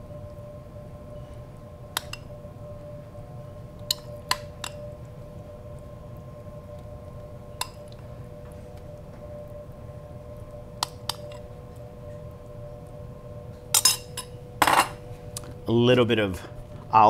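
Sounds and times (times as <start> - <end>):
steady low hum: 0.0 - 17.0
metal spoon clinking on glass bowl: 13.8 - 15.0.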